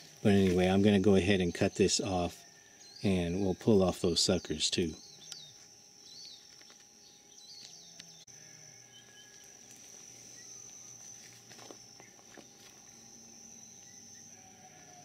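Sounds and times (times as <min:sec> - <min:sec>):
insect chirring: 0:00.0 - 0:15.0.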